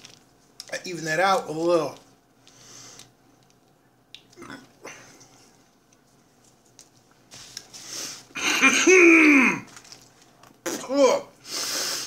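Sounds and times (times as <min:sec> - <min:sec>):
quiet food handling: 0:00.0 - 0:08.2, 0:09.6 - 0:10.6
man groaning: 0:08.8 - 0:09.7.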